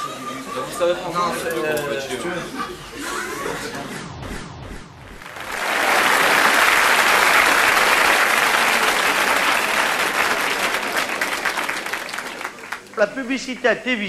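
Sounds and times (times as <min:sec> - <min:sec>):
audience applauding: 0:05.2 - 0:13.1.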